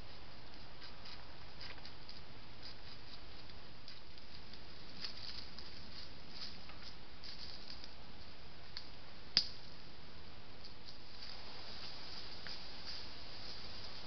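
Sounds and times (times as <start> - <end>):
footsteps in dry leaves: 0.0 - 7.9, 10.9 - 14.0
microphone hiss: 0.0 - 14.0.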